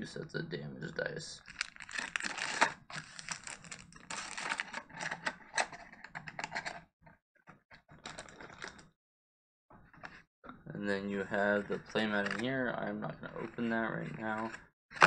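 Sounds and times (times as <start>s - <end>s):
cardboard box contents rattling: 1.5s - 5.2s.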